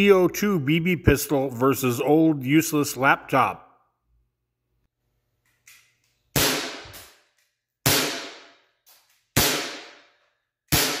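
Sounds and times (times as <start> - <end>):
air pistol shots cracking: 6.4 - 8.6, 9.4 - 10.1, 10.7 - 11.0.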